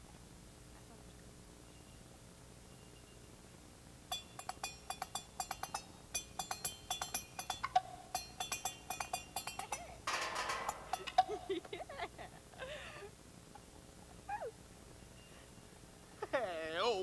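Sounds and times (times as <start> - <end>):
drumsticks clinking on metal: 4.1 - 11.5.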